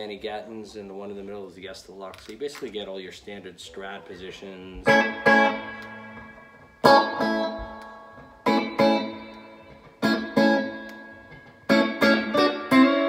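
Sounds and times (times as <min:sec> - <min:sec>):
electric guitar chords strummed: 0:04.2 - 0:13.0.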